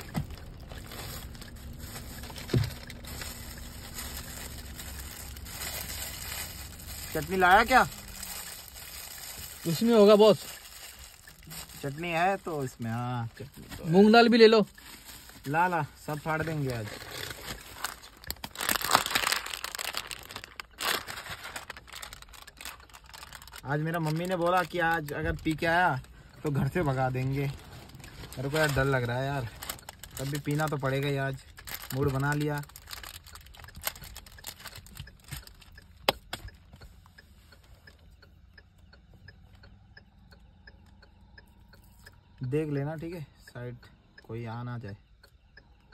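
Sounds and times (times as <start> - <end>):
plastic packaging crinkling: 0.0 - 26.1, 26.9 - 35.7
faint regular ticking: 0.0 - 45.9.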